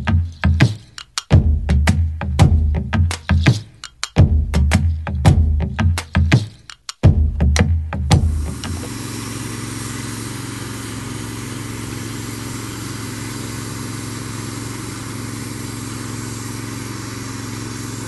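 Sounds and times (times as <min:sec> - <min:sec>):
hot-air welding gun running: 0:08.2 - 0:18.0.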